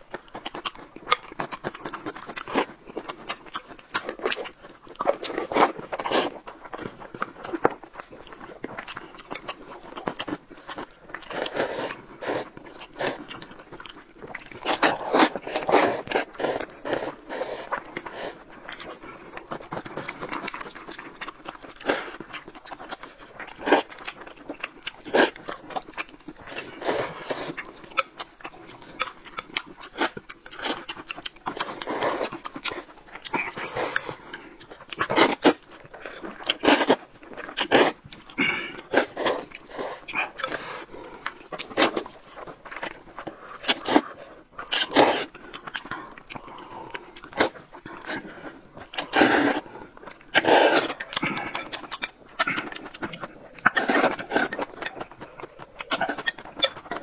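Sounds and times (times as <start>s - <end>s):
chewing: 0.0s - 57.0s
noodles being slurped: 25.0s - 57.0s.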